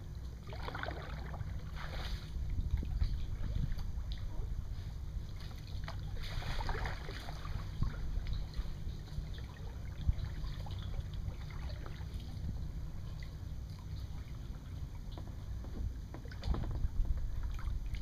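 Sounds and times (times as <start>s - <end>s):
steady low rumble: 0.0s - 18.0s
kayak paddle splashing: 0.4s - 4.2s, 5.3s - 12.5s.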